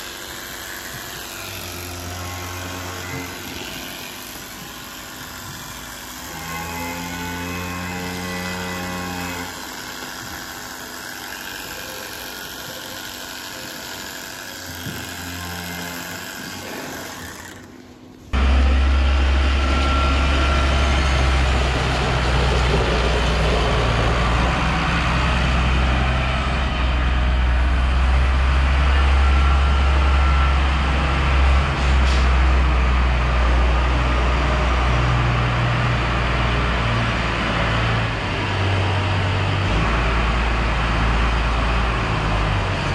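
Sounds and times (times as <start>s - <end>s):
tractor diesel engine running: 17.8s - 42.9s.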